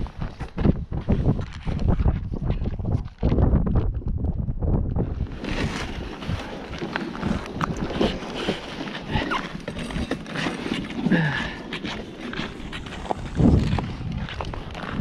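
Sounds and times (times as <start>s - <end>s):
footsteps on snow: 0.0s - 3.2s, 5.1s - 15.0s
gear knocking and clattering: 6.7s - 15.0s.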